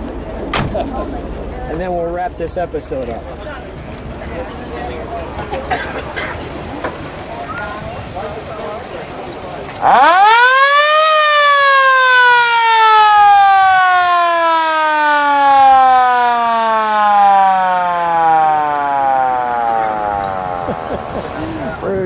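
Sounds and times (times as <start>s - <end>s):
ambulance siren wailing: 9.8s - 21.4s.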